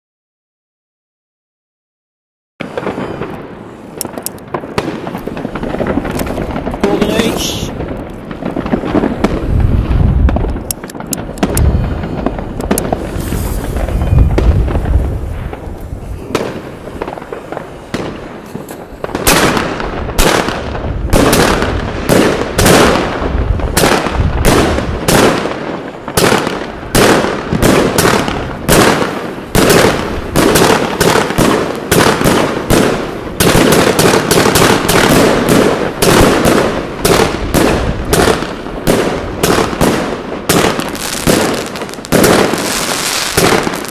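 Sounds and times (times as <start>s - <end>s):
fireworks bangs: 2.6s - 43.9s
scattered pops: 4.0s - 9.4s, 10.3s - 14.9s.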